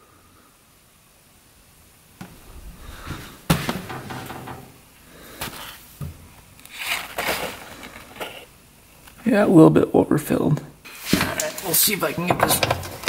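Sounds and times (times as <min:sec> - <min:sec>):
knocks and clatters: 0:02.2 - 0:04.8.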